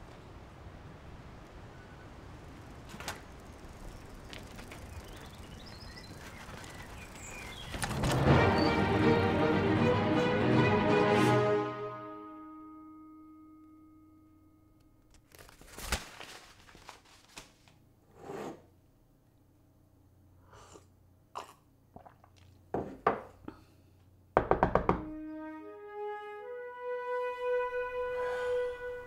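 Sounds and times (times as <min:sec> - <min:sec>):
soft music: 0:08.2 - 0:15.1, 0:24.9 - 0:29.0
knocking on door: 0:24.4 - 0:25.1.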